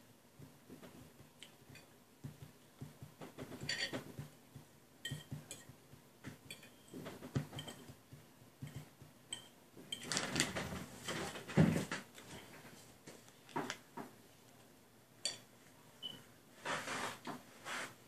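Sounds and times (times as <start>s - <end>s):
rustling and shuffling: 0.3s - 14.7s, 15.6s - 18.0s
cutlery scraping on ceramic plates: 3.6s - 4.1s.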